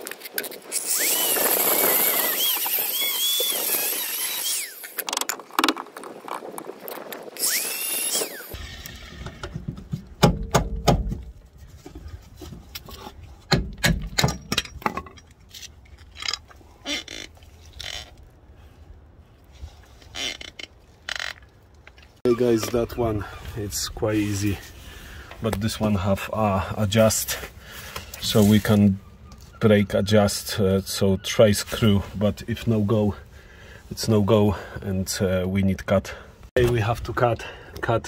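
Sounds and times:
angle grinder cutting metal: 0:00.7 - 0:05.0, 0:07.4 - 0:09.1
metal clanks and knocks: 0:09.0 - 0:16.5.

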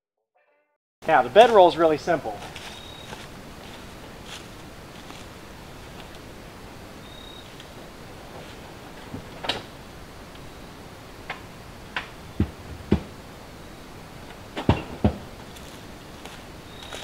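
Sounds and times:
heavy thumps: 0:12.0 - 0:13.2.

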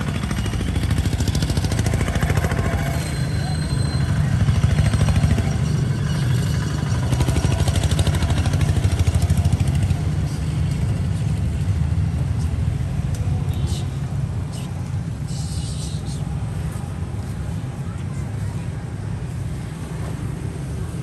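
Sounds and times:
small engine running: 0:00.0 - 0:12.2.

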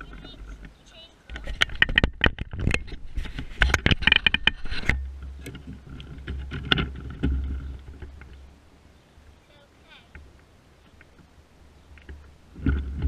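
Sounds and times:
low rumble with knocks: 0:00.0 - 0:08.5, 0:12.0 - 0:13.0.

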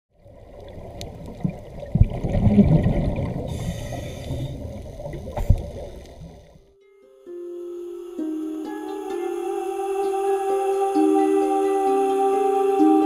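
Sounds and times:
low rumbling underwater noise: 0:00.1 - 0:06.7
hiss of regulator bubbles: 0:02.3 - 0:06.6.

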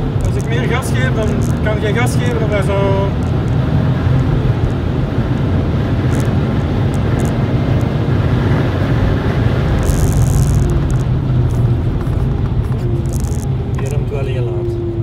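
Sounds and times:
car engine drone: 0:00.0 - 0:15.0
road and wind noise: 0:00.0 - 0:15.0.

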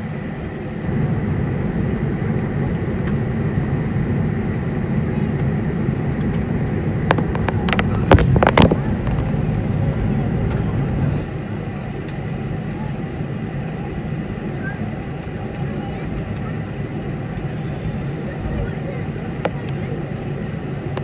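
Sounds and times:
aircraft engines rumbling: 0:00.0 - 0:21.0
faint high whine: 0:07.6 - 0:20.9.

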